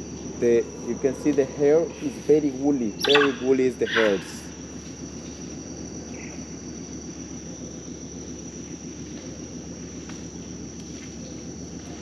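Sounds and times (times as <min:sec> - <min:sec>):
insects droning: 0:00.0 - 0:12.0
faint animal call: 0:03.0 - 0:04.5.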